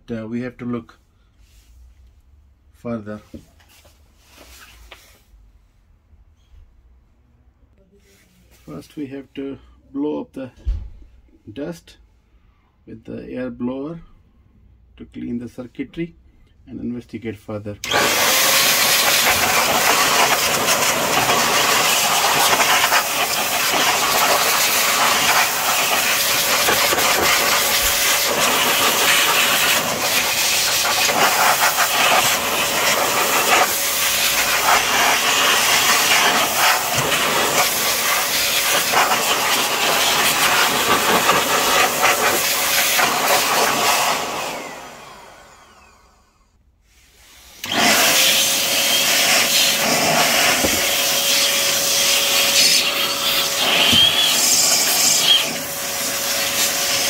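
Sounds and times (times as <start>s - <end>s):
electric air blower running: 17.8s - 46.6s, 47.2s - 57.0s.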